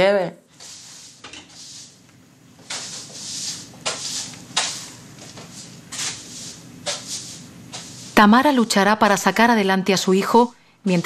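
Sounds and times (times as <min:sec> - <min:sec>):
objects rustling and scraping on desk: 0:00.5 - 0:08.2.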